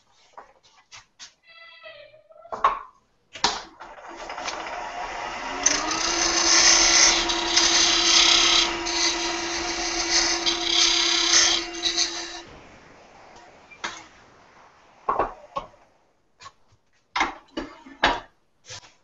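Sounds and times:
wood lathe motor whine: 0:03.8 - 0:15.3
turning tool cutting wood hiss: 0:03.8 - 0:15.9.

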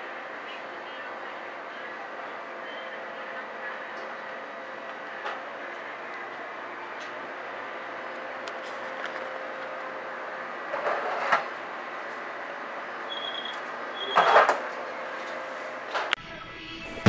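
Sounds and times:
kitchen equipment humming: 0:00.0 - 0:16.2
high beep: 0:13.1 - 0:14.4.

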